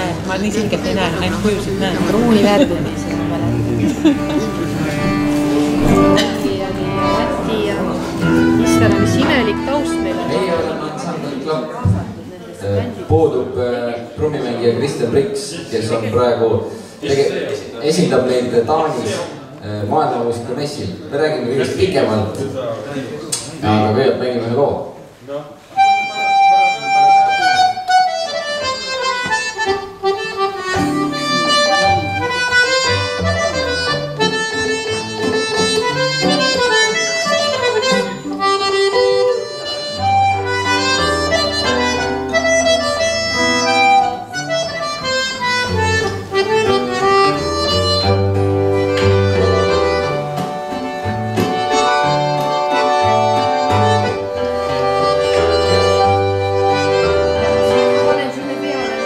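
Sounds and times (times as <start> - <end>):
bass notes: 0.0 - 11.1, 30.0 - 58.3
button accordion tune: 0.0 - 11.1, 25.8 - 59.0
acoustic guitar chords: 0.0 - 12.0, 25.8 - 59.0.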